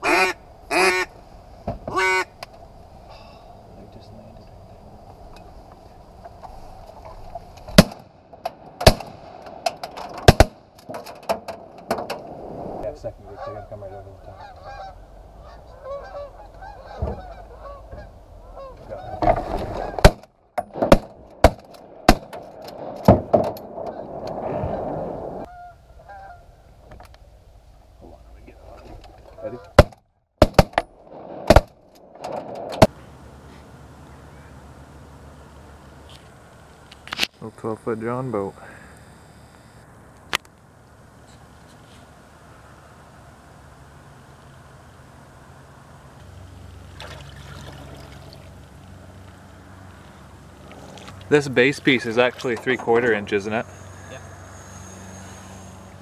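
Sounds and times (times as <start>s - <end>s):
steady low hiss: 0.0s - 56.0s
shotgun blasts: 7.7s - 8.1s, 8.8s - 9.4s, 10.2s - 10.6s, 20.0s - 23.4s, 29.8s - 31.8s.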